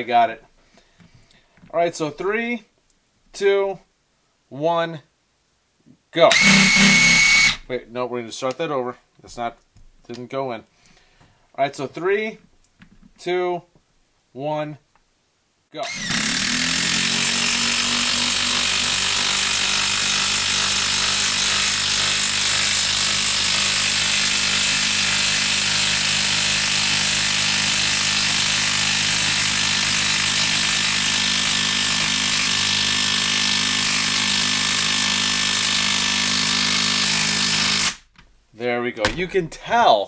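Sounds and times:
impact wrench hammering: 6.3s - 7.6s.

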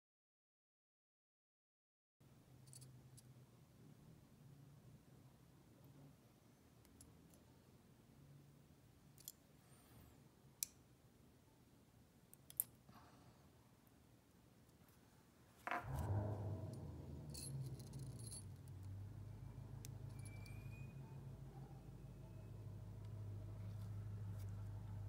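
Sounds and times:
low steady hum: 15.6s - 25.0s
small jingle bell jangling: 17.2s - 18.9s.

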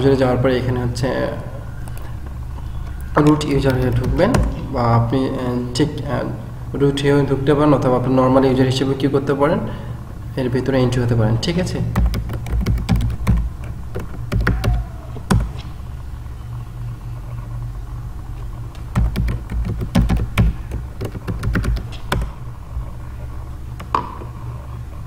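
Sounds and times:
steady low hum: 0.0s - 25.0s
computer keyboard keystrokes: 12.0s - 15.7s, 18.8s - 22.4s.

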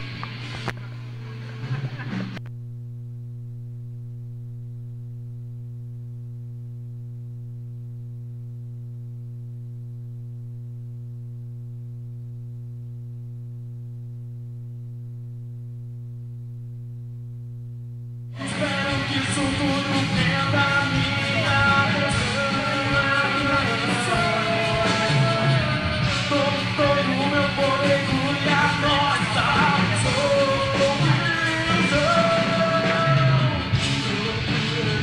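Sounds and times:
electrical mains hum: 0.0s - 35.0s
loud rock band music: 18.4s - 35.0s.

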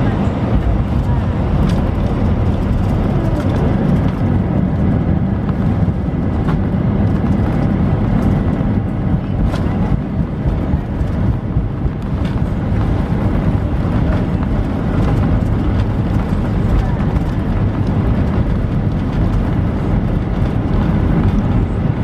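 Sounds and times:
airplane cabin rumble: 0.0s - 22.0s.

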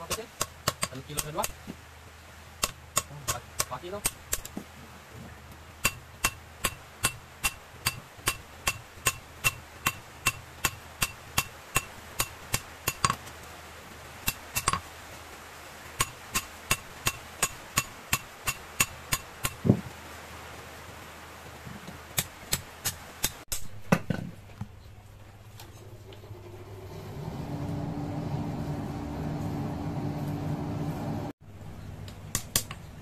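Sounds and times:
dull thump: 19.6s - 19.9s.

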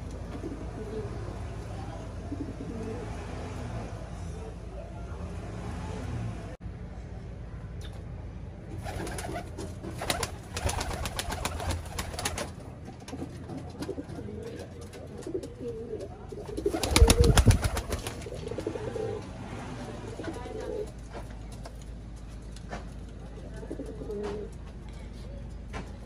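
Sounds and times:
pigeons cooing: 0.3s - 1.4s, 2.2s - 3.3s, 13.1s - 19.4s
wings flapping: 8.8s - 19.3s.

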